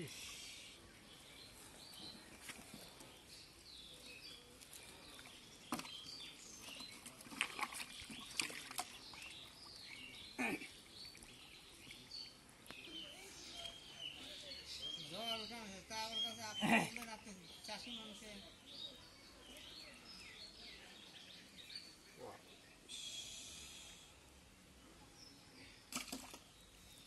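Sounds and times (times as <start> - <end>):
birds chirping: 0.0 - 27.0
hands squelching in mud: 7.0 - 9.2.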